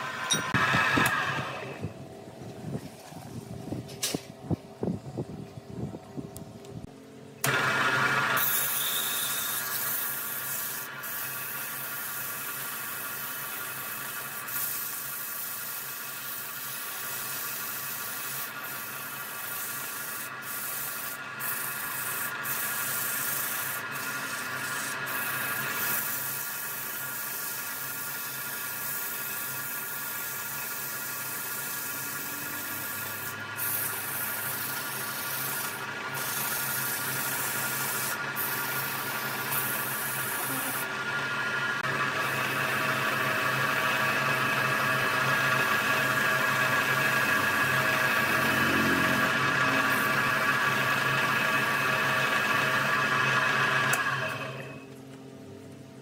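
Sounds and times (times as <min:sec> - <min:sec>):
wood lathe rubbing and hissing: 0:07.4 - 0:54.8
motor hum: 0:31.9 - 0:56.0.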